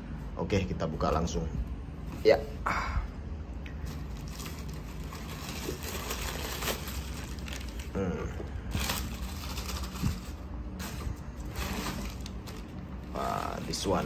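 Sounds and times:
tissue paper rustling and crinkling: 0:03.8 - 0:14.0.

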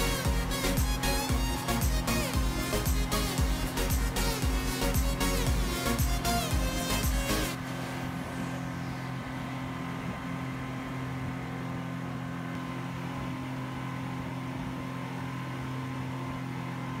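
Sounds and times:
motorboat engine drone: 0:00.0 - 0:17.0.

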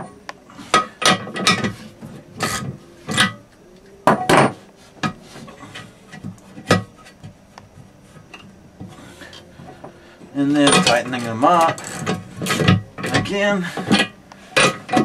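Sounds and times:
wrench scraping on nuts: 0:10.4 - 0:15.0.

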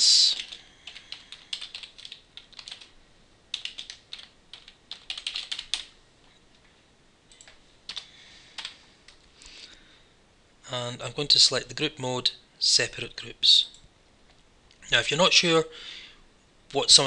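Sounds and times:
computer keyboard typing: 0:00.3 - 0:05.9, 0:07.3 - 0:09.2.

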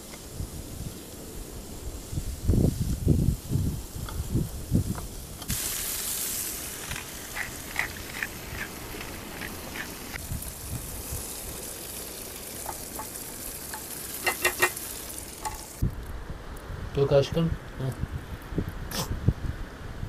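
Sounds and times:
vegetables sizzling in a skillet: 0:00.0 - 0:15.8
utensil clicking against pan: 0:12.6 - 0:14.8.

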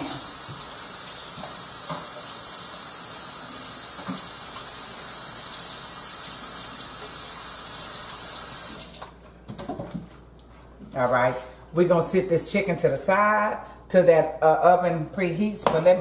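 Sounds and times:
faucet running: 0:00.0 - 0:09.2.

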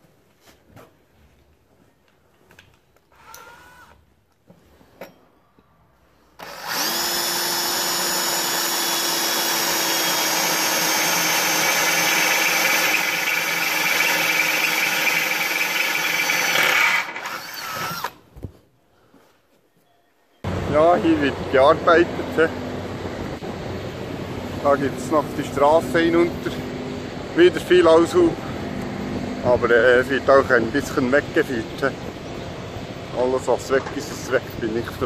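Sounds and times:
cordless drill running: 0:03.2 - 0:04.0, 0:06.4 - 0:18.2.

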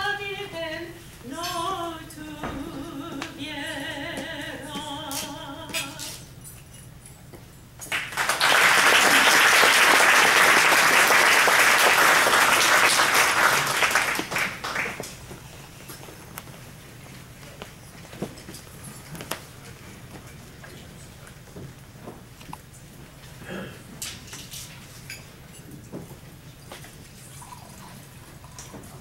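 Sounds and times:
woman singing with vibrato: 0:00.0 - 0:06.3
audience applause: 0:07.9 - 0:15.2.

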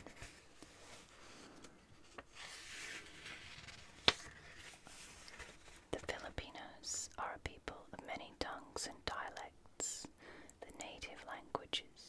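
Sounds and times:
paper page rustling: 0:00.0 - 0:06.1
crisp page flick: 0:02.1 - 0:05.6.

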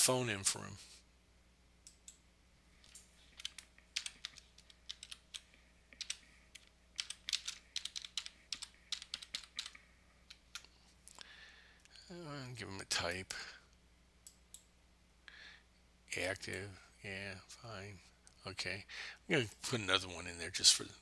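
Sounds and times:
keyboard keystrokes: 0:02.9 - 0:05.4, 0:06.0 - 0:10.6.

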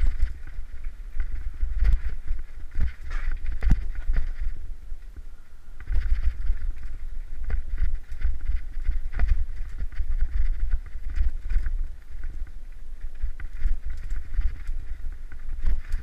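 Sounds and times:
bike knocking and rattling on rocks: 0:00.0 - 0:05.2, 0:05.8 - 0:16.0
wind rumble on microphone: 0:00.0 - 0:16.0.

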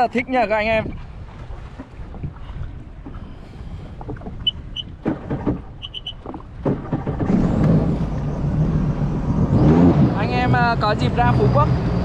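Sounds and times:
jet ski engine: 0:02.6 - 0:12.0
short electronic beeps: 0:04.4 - 0:04.9, 0:05.8 - 0:06.2
knocks: 0:05.0 - 0:07.4.

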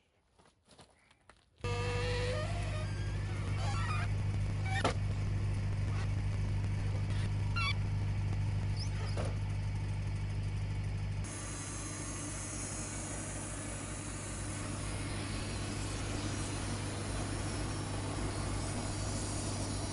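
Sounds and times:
bandsaw mill running: 0:01.6 - 0:19.9
bandsaw cutting through log: 0:01.7 - 0:03.9.

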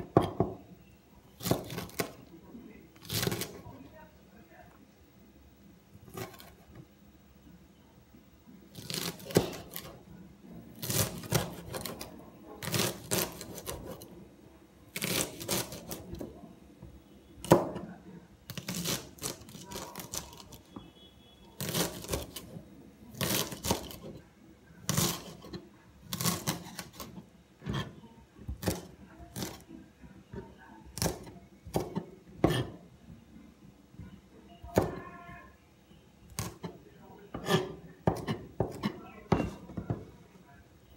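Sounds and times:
knife chopping on cutting board: 0:01.4 - 0:02.2, 0:03.0 - 0:03.6, 0:06.1 - 0:06.6, 0:08.8 - 0:10.0, 0:10.8 - 0:14.0, 0:15.0 - 0:16.3, 0:17.4 - 0:17.9, 0:21.6 - 0:22.5, 0:23.2 - 0:24.2, 0:24.9 - 0:29.6, 0:31.0 - 0:32.8, 0:36.4 - 0:40.0.

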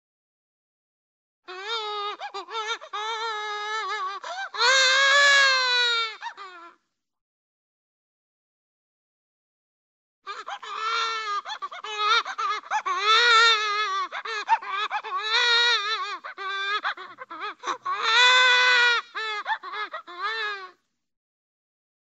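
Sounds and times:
cartoon baby crying: 0:01.5 - 0:06.8, 0:10.3 - 0:20.8.

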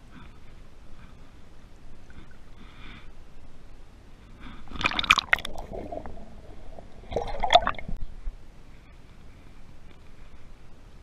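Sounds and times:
river water splashing and gurgling: 0:04.6 - 0:08.0
sharp splashes: 0:04.7 - 0:08.0.

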